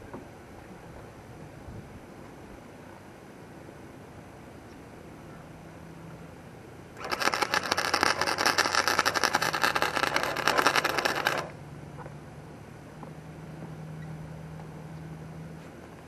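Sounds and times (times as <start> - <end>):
welder arc crackling: 7.0 - 11.6.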